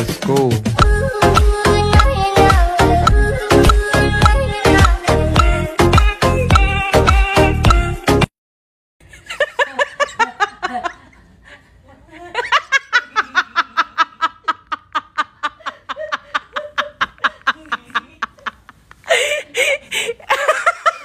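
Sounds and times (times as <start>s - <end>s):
person laughing hard: 12.2s - 21.0s.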